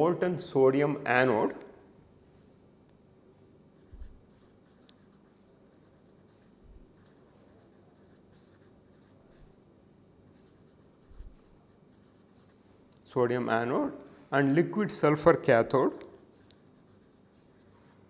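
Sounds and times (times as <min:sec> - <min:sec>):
marker scratching on paper: 0:03.8 - 0:09.6, 0:10.2 - 0:12.6, 0:15.9 - 0:18.0.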